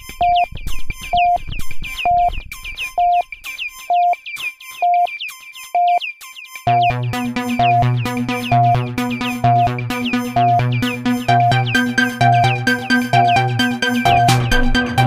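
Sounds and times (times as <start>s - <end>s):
high synth beep: 0.2s - 0.5s, 2.1s - 2.3s, 3.0s - 6.0s, 6.7s - 14.4s
dance beat with heavy bass: 6.7s - 15.0s
plucked synth notes dropping: 6.7s - 15.0s.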